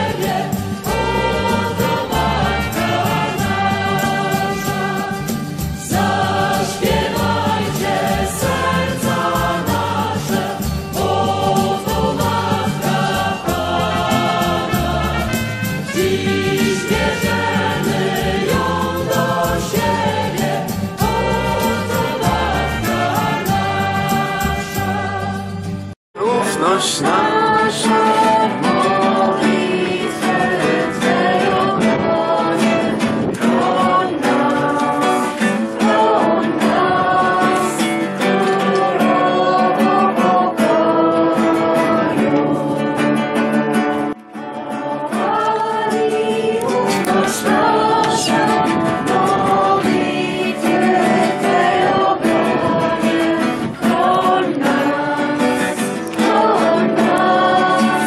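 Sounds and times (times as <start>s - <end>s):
acoustic guitar: 0.0s - 58.0s
woman singing: 26.6s - 43.0s, 44.7s - 55.6s.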